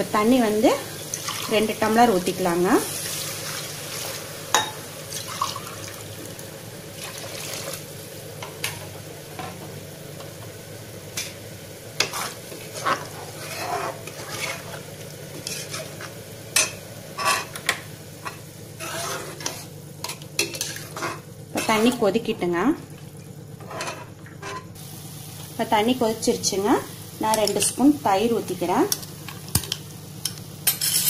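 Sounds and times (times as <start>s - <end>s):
metal ladle scraping pot: 12.0s - 16.1s, 17.2s - 17.7s, 18.7s - 22.0s, 23.6s - 24.8s
hiss of heating liquid: 24.8s - 27.3s.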